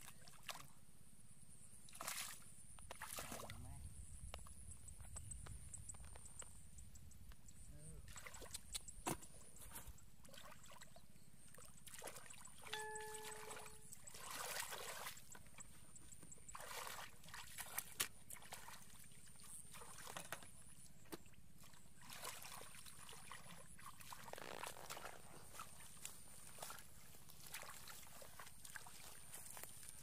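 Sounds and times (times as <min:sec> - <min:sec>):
hands splashing in muddy water: 0:13.3 - 0:15.4, 0:16.5 - 0:20.6, 0:21.2 - 0:30.0.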